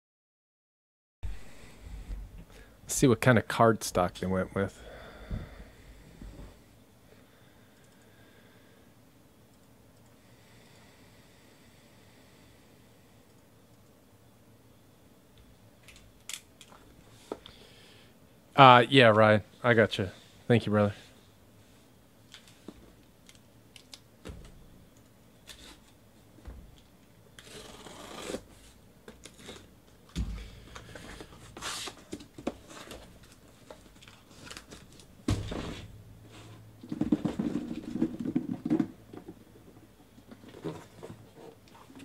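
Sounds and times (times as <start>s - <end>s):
knife cutting cardboard: 27.4s - 28.7s
cardboard and tape rustling: 27.4s - 42.0s
boxes set down with thumps: 35.2s - 35.9s, 36.8s - 39.4s.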